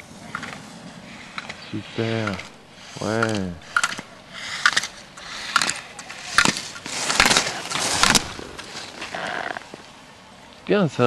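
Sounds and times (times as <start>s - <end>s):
gate poles clacking: 1.3s - 9.8s
skis scraping on hard snow: 4.6s - 9.8s.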